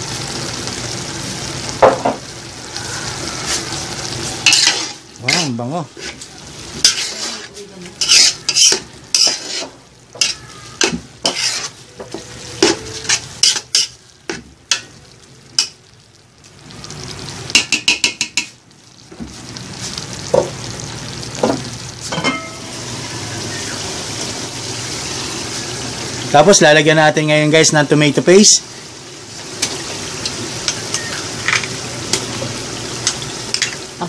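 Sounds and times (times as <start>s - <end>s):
meat frying sizzle: 0.0s - 34.0s
metal spoon scraping a pot: 4.4s - 6.2s, 6.8s - 11.8s, 12.6s - 14.0s
taps on a pot: 17.5s - 18.5s
pot clanks: 21.4s - 22.7s, 33.0s - 33.8s.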